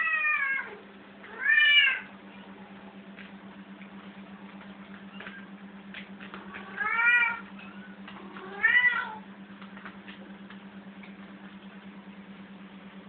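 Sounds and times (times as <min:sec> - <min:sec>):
cat meowing: 0:00.0 - 0:02.1, 0:06.5 - 0:09.2.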